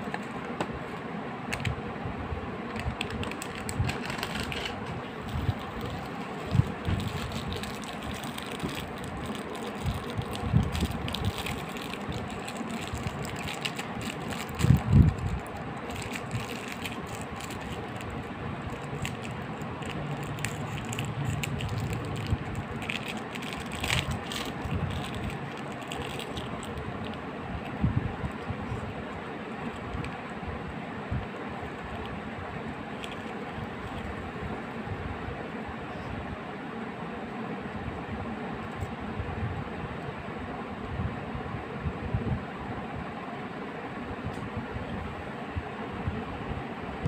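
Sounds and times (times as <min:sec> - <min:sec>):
plastic wrapper crinkling: 0:02.7 - 0:27.8, 0:32.9 - 0:34.1.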